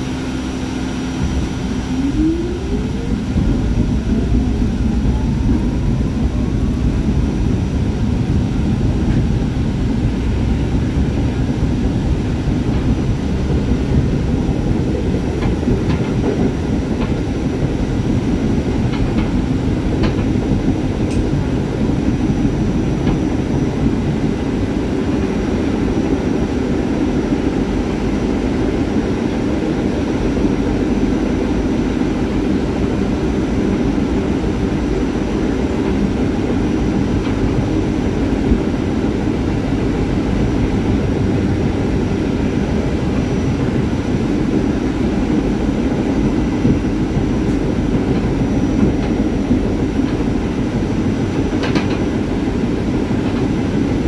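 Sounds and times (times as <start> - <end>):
traction motor whine rising: 0.0 - 8.2
wheels running on rails: 1.2 - 54.0.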